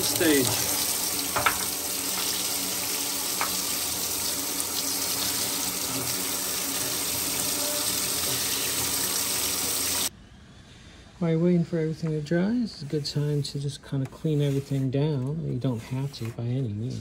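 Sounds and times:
tap water splashing: 0:00.0 - 0:02.4, 0:03.3 - 0:03.8.

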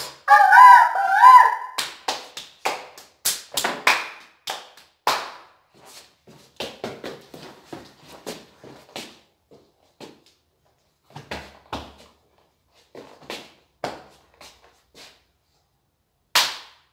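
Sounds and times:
children's hands clapping: 0:01.4 - 0:05.5, 0:16.4 - 0:16.9.

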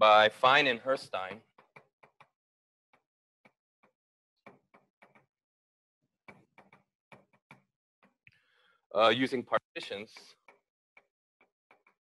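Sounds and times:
chalk tapping on a blackboard: 0:01.4 - 0:05.3, 0:06.3 - 0:08.2, 0:09.9 - 0:12.0.

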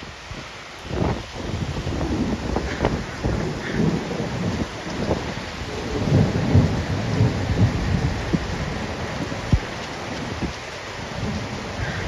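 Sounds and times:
pouring rain: 0:00.0 - 0:12.0
thunder rumbling: 0:00.9 - 0:12.0.

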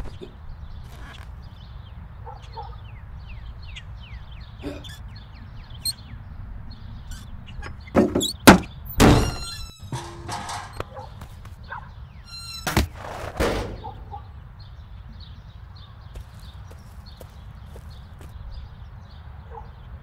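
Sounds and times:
faint chirping: 0:02.2 - 0:12.8
cartoon thumps and clatter: 0:08.0 - 0:10.9.

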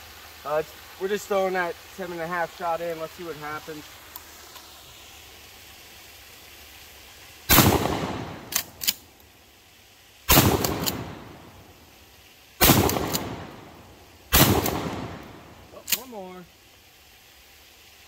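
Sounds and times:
shotgun blasts: 0:07.5 - 0:09.0, 0:10.3 - 0:11.4, 0:12.6 - 0:13.7, 0:14.3 - 0:15.6
shotgun pump clicks: 0:07.9 - 0:09.0, 0:10.5 - 0:11.0, 0:12.7 - 0:13.4, 0:15.8 - 0:16.1.

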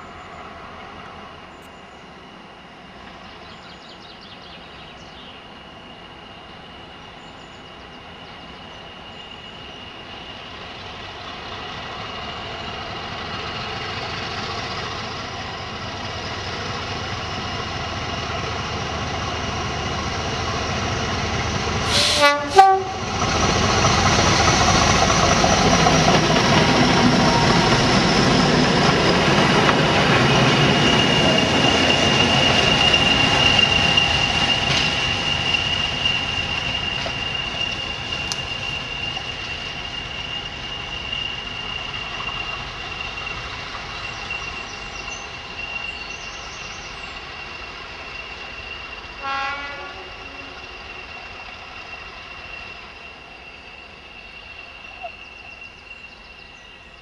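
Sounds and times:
diesel locomotive engine: 0:00.0 - 0:57.0
train wheel noise: 0:04.6 - 0:57.0
train horn blasts: 0:21.9 - 0:23.1, 0:49.2 - 0:50.7.

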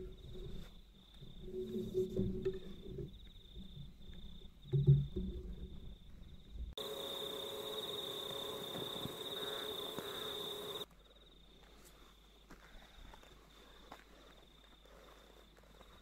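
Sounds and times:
insects buzzing: 0:06.5 - 0:11.5.

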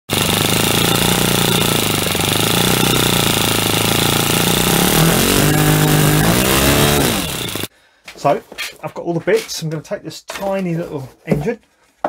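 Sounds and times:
model engine running: 0:00.1 - 0:07.7.

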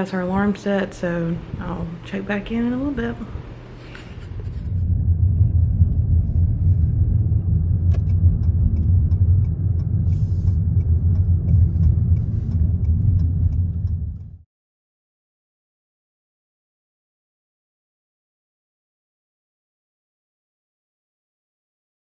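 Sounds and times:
car road and engine noise: 0:04.3 - 0:14.4
faint light ticks: 0:07.9 - 0:14.3.

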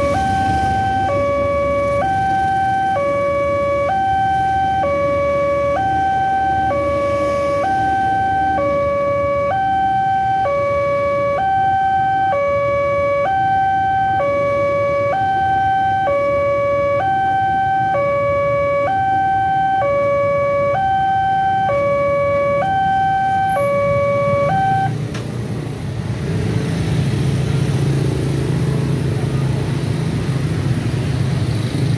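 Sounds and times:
two-note crossing alarm: 0:00.0 - 0:25.0
motorcycle and car engines: 0:00.0 - 0:31.9.

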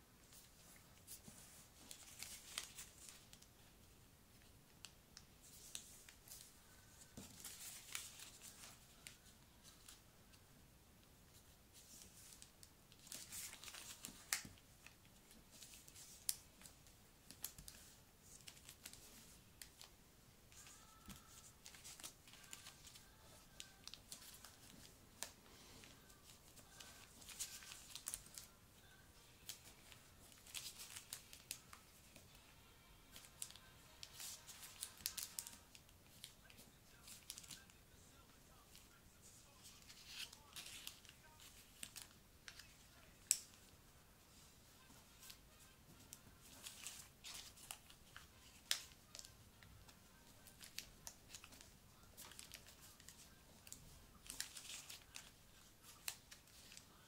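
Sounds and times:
paper rustling and crinkling: 0:00.2 - 0:03.7, 0:05.4 - 0:10.0, 0:11.3 - 0:28.6, 0:29.4 - 0:32.3, 0:33.1 - 0:57.0
sharp paper clicks: 0:33.4 - 0:37.6, 0:46.5 - 0:49.3, 0:50.4 - 0:56.9.

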